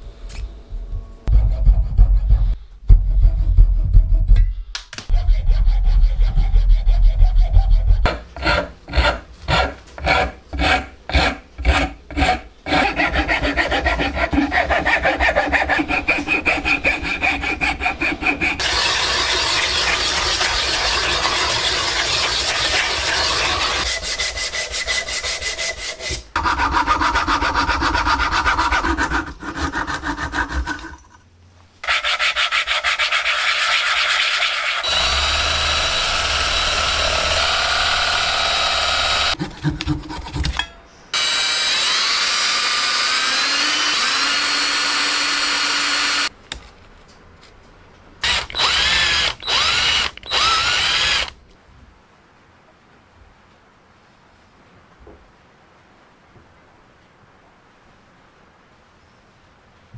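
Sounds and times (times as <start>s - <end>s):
saw blade rasping on dowel: 5.1s - 31.2s, 31.8s - 35.9s
saw cutting wood: 8.0s - 31.1s, 31.8s - 46.3s, 48.2s - 51.3s
wood rubbed on sandpaper: 31.8s - 35.0s.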